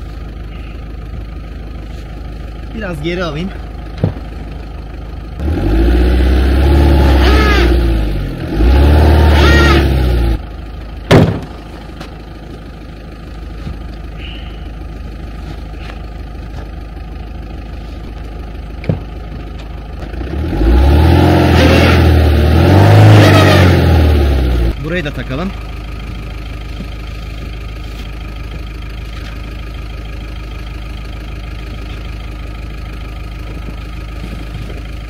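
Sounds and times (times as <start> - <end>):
van engine revving and idling: 0.0 - 35.0
vehicle door slamming: 4.0 - 4.3, 11.1 - 11.6.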